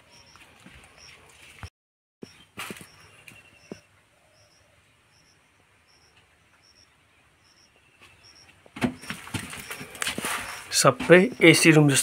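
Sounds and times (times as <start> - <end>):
rustling: 8.0 - 11.7.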